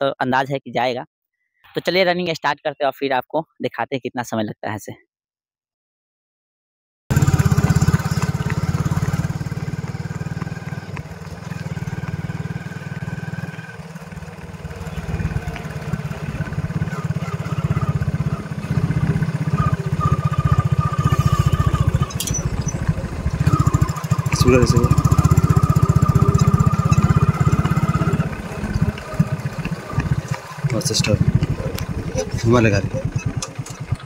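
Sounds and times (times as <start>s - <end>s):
motorcycle engine chugging: 7.1s - 34.0s.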